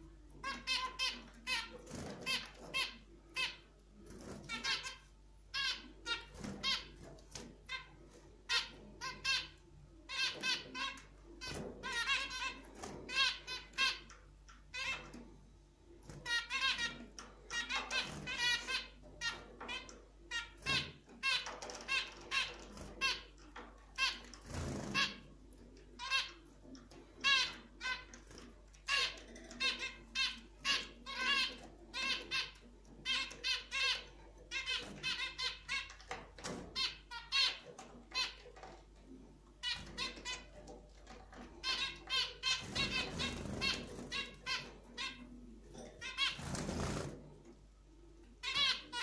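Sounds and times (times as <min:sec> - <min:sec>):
wings fluttering: 0:24.2 - 0:25.3, 0:42.5 - 0:44.6, 0:46.2 - 0:47.3
finches calling: 0:41.6 - 0:45.4.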